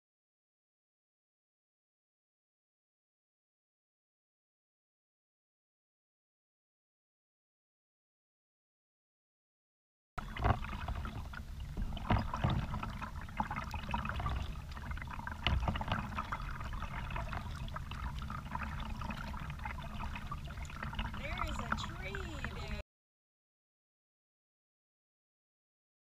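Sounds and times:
paddle splashing in water: 10.2s - 22.8s
water dripping: 10.2s - 22.8s.

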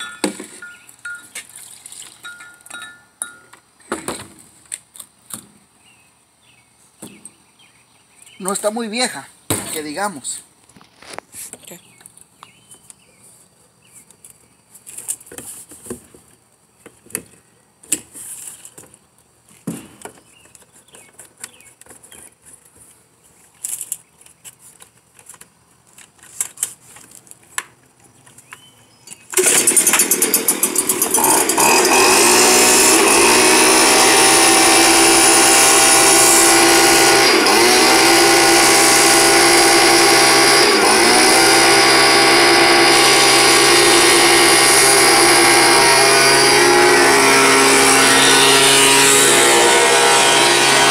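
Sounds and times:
leaf blower engine running: 29.4s - 50.9s.

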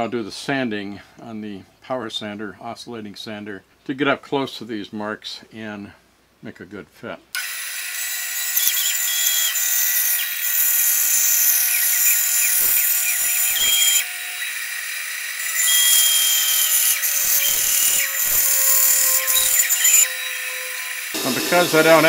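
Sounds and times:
bandsaw cutting plywood: 7.4s - 22.0s.

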